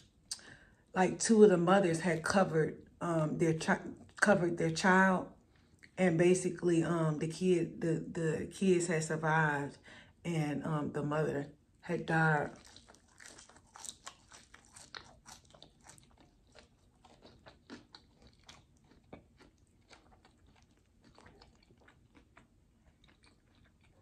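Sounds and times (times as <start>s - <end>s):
person chewing: 12.4s - 24.0s.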